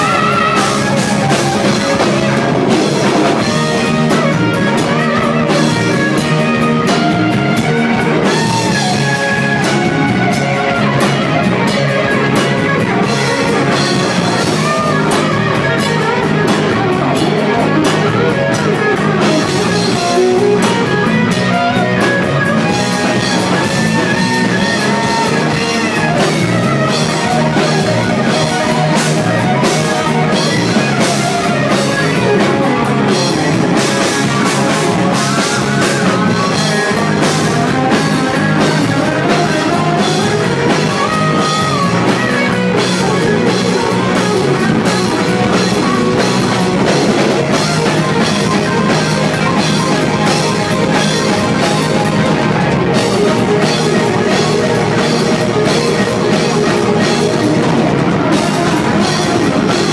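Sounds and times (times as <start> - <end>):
electric guitar solo: 0.0 - 59.9
pounding drum kit: 0.0 - 59.9.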